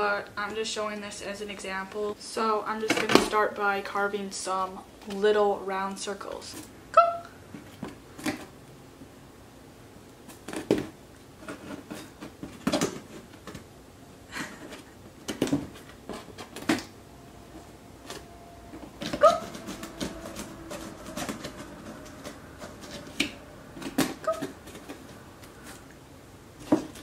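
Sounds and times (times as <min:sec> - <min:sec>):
cat pawing cardboard box: 0:18.0 - 0:25.8.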